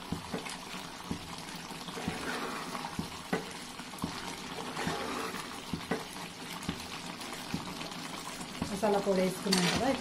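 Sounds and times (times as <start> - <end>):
ladle stirring thick curry: 0.1 - 8.8.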